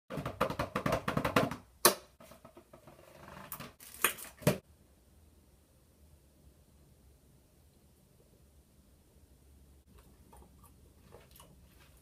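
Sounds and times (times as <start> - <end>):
packaging crinkling and rustling: 3.8 - 4.6.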